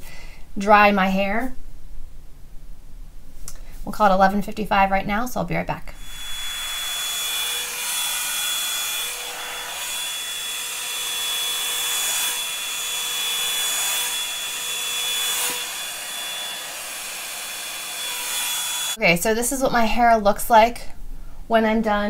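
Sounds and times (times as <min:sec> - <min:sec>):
hot-air brush blowing with motor whine: 0:06.0 - 0:19.0.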